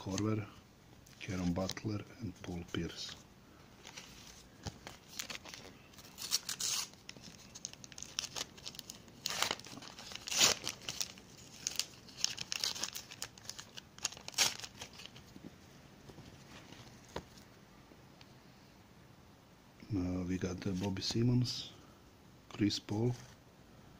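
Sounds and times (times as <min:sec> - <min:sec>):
wrapper tearing and crinkling: 0:04.8 - 0:15.2.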